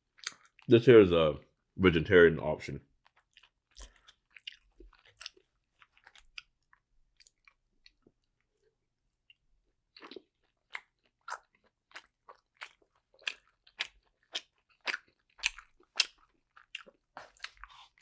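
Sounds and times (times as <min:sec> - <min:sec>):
mouth chewing wet smacks: 0:00.2 - 0:00.7, 0:03.0 - 0:08.1, 0:09.2 - 0:18.0.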